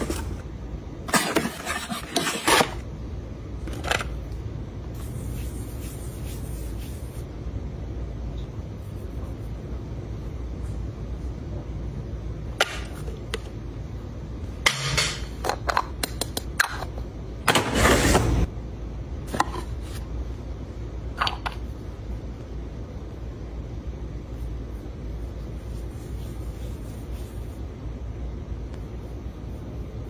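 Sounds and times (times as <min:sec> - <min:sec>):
steady low rumble: 0:02.8 - 0:14.7, 0:18.4 - 0:30.0.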